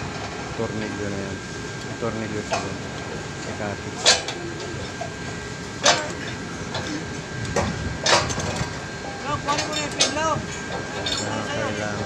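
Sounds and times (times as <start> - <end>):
background hum with high tone: 0.0 - 12.0
metal clanks: 4.0 - 5.1, 5.8 - 7.0, 7.6 - 11.6.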